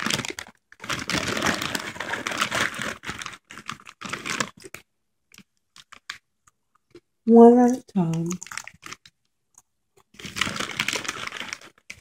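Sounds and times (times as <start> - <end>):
chip bag crinkling: 0.0 - 6.2, 8.1 - 9.1, 10.1 - 12.0.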